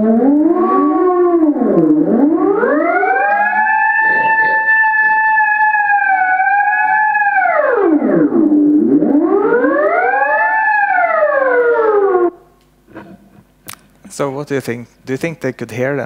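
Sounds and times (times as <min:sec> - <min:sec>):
electronic sliding tone: 0:02.7 - 0:05.8.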